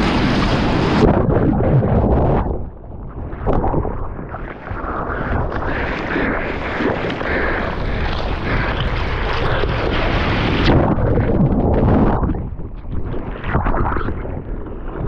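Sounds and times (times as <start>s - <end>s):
whitewater rushing and splashing: 0.0s - 1.2s
wind on microphone: 0.0s - 15.0s.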